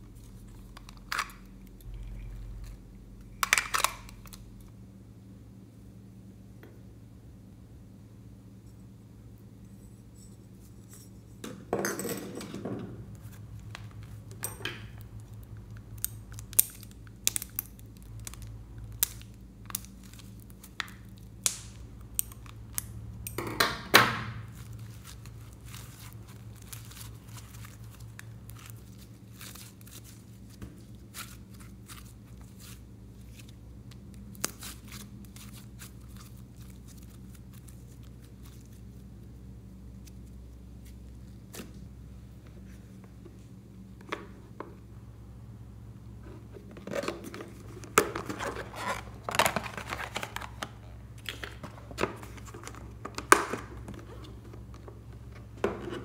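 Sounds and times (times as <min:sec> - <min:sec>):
steady low hum: 0:00.0 - 0:56.0
squishy ball and slime squelching: 0:24.3 - 0:44.5.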